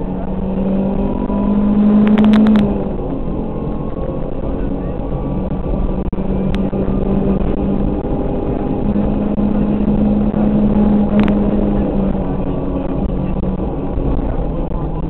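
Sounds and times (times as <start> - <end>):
car engine revving high: 0.0 - 15.0
road rumble: 0.0 - 15.0.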